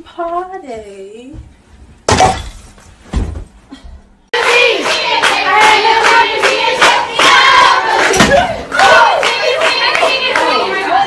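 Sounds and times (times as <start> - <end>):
group clapping rhythmically: 4.3 - 11.0
people singing and shouting: 4.4 - 11.0.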